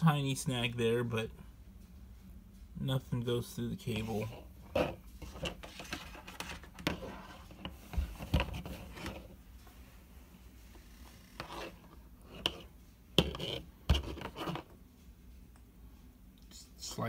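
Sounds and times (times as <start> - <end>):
cord rubbing and scraping: 3.9 - 9.4, 10.6 - 14.8.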